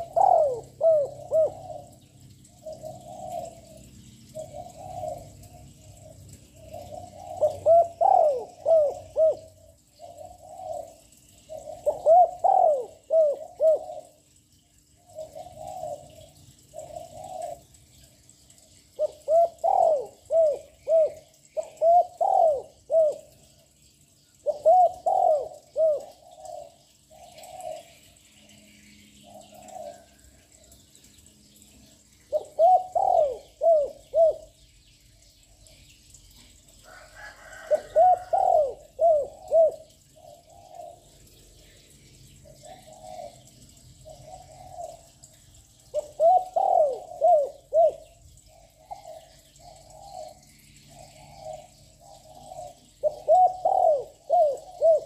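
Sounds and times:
dove cooing: 0.0s - 14.2s, 15.1s - 17.8s, 18.9s - 23.8s, 24.4s - 28.1s, 29.2s - 30.3s, 32.2s - 34.6s, 36.8s - 41.3s, 42.4s - 45.2s, 45.8s - 55.0s.

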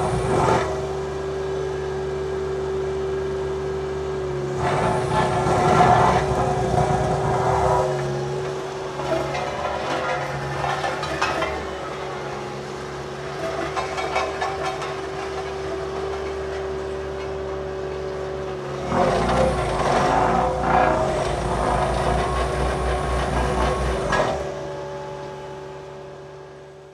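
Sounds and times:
heavy diesel engine running: 0.0s - 26.9s.

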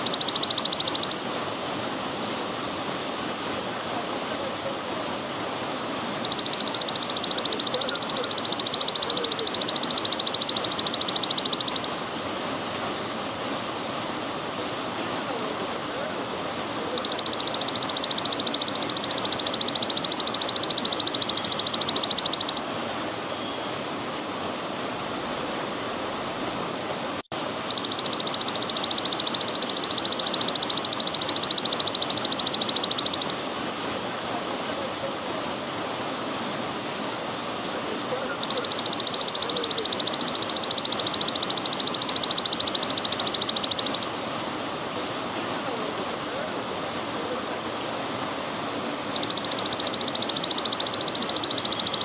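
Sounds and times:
grasshopper buzzing trills: 0.0s - 1.2s, 6.2s - 11.9s, 16.9s - 22.6s, 27.6s - 33.4s, 38.4s - 44.1s, 49.1s - 52.0s
trickling water: 0.0s - 23.1s, 27.4s - 37.7s, 38.4s - 52.0s.

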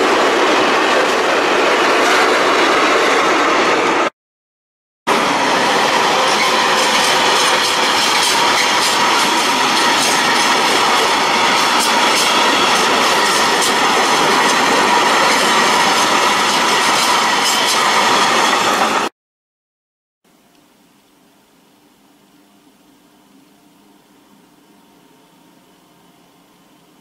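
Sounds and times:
freight train rolling past: 0.0s - 4.1s, 5.1s - 19.1s.

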